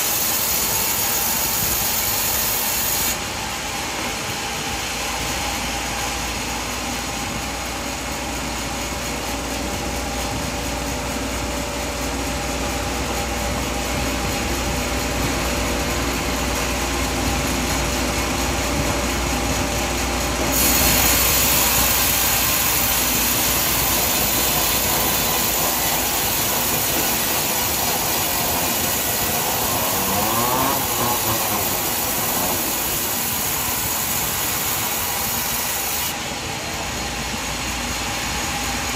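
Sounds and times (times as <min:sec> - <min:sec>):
sawmill machinery cutting wood: 0:13.9 - 0:36.2
rising and falling whine: 0:21.2 - 0:37.0.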